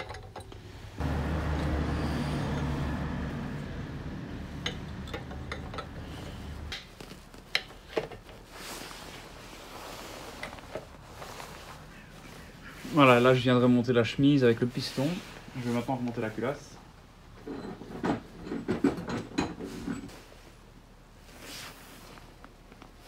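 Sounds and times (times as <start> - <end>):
low engine hum: 0.9 - 6.7.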